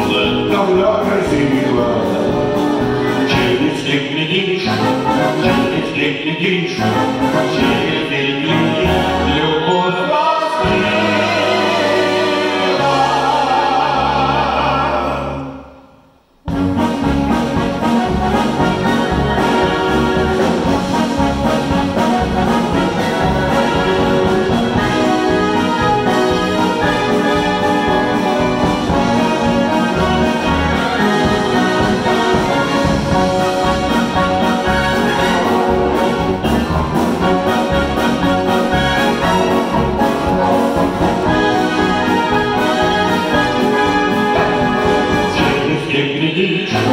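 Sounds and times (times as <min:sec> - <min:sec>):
male voices singing with vibrato: 0:00.0 - 0:15.8, 0:41.3 - 0:46.9
wind band chords: 0:00.0 - 0:46.0.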